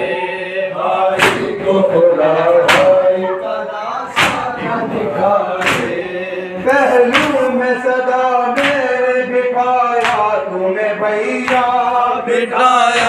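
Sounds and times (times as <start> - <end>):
men chanting in long notes: 0.0 - 13.0
hands slapping chests in unison: 1.1 - 1.6, 2.6 - 3.1, 4.1 - 7.6, 8.5 - 9.0, 10.0 - 10.5, 11.4 - 12.0.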